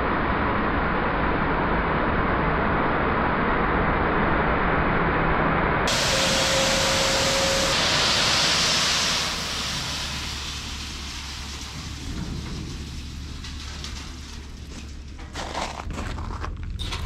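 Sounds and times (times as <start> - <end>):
crushed stone sliding out of trailer: 5.9 - 17.0.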